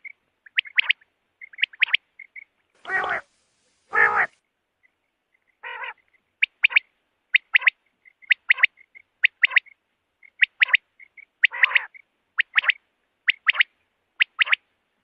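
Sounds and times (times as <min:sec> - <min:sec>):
quail calling: 0:00.0 - 0:03.3, 0:03.9 - 0:04.4, 0:05.6 - 0:14.6
harsher bird call burst: 0:02.8 - 0:03.3, 0:03.9 - 0:04.3.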